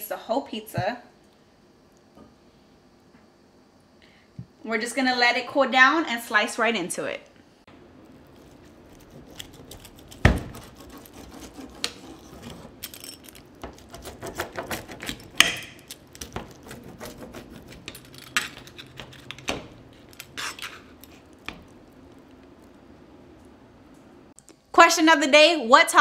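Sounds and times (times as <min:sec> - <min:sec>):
pizza cutter scraping metal pan: 0:08.4 - 0:15.5, 0:16.2 - 0:21.6.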